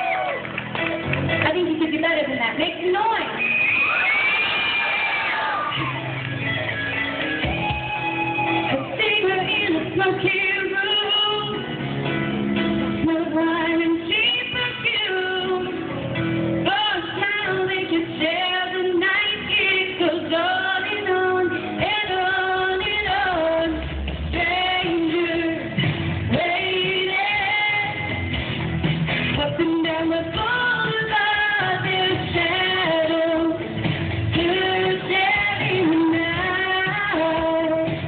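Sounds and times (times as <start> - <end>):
instrumental backing music: 0.0 - 38.0
woman singing with vibrato: 8.7 - 11.8, 13.0 - 16.0, 16.6 - 28.3, 29.4 - 38.0.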